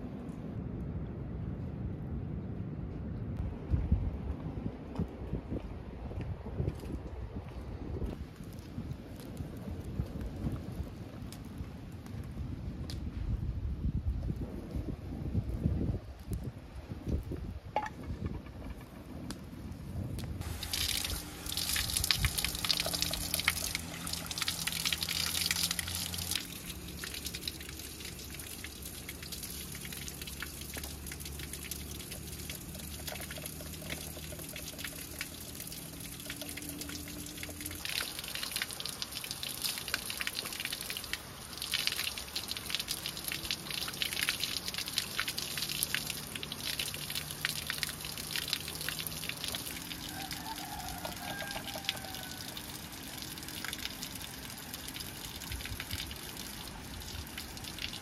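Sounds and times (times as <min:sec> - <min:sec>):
splashing in metal pot: 0:20.4 - 0:41.0
water running from tap: 0:45.6 - 0:52.5.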